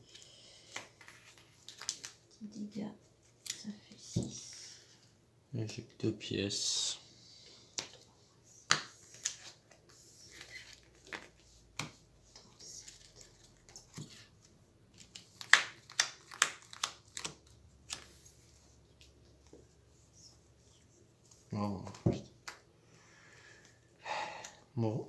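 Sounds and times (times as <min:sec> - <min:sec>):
playing cards tapping and snapping: 0:08.7 - 0:09.8, 0:10.9 - 0:12.0, 0:15.0 - 0:18.1.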